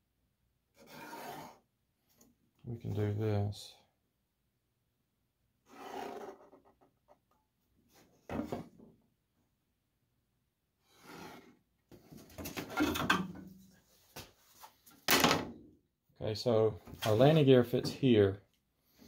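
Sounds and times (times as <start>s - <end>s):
plywood template scraping wood: 0.8s - 1.6s, 5.7s - 6.7s
tools scraping and knocking: 11.0s - 13.7s.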